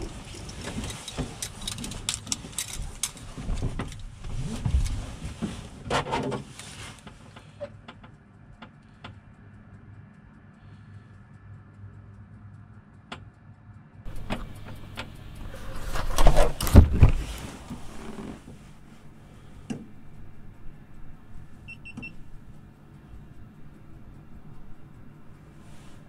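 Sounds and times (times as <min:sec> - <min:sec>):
knocking and rustling: 0:00.0 - 0:07.2, 0:14.1 - 0:20.0.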